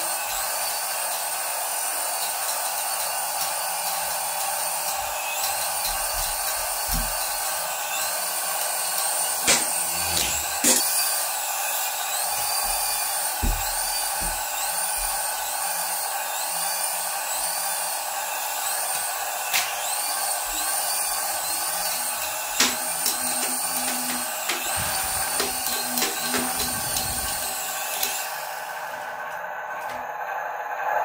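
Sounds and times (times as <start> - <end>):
toy helicopter rotors whirring: 0.0 - 29.3
helicopter knocking and clattering: 12.4 - 15.4.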